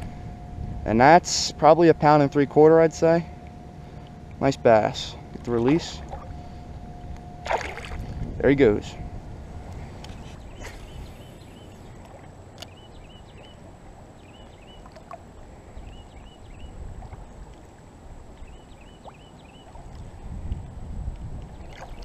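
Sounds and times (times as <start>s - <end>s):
low outdoor rumble: 0.0s - 22.0s
bird chirping: 10.1s - 12.0s, 12.6s - 13.6s, 14.2s - 14.9s, 15.7s - 16.8s, 18.4s - 19.7s
faint clicks: 12.6s - 12.8s.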